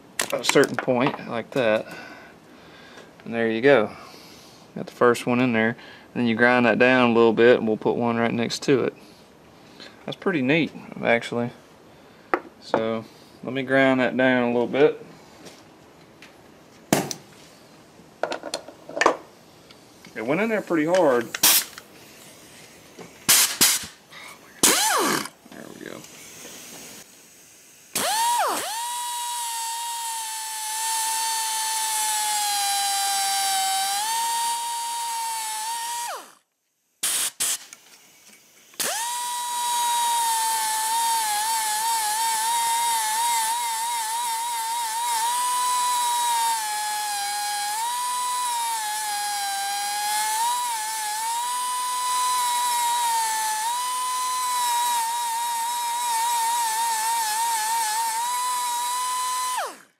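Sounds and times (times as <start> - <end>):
air die grinder whining: 24.6 - 25.3, 28.0 - 36.4, 38.8 - 59.9.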